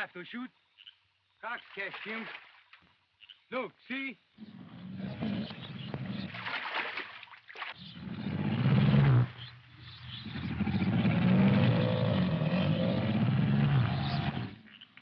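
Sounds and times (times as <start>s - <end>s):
water splashing: 1.5s - 2.8s, 5.1s - 9.6s
deep animal roars: 4.4s - 6.4s, 7.9s - 9.4s, 10.0s - 14.7s.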